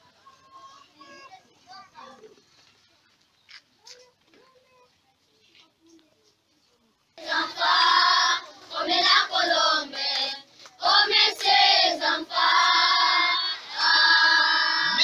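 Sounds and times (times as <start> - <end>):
children singing together: 7.2 - 15.0.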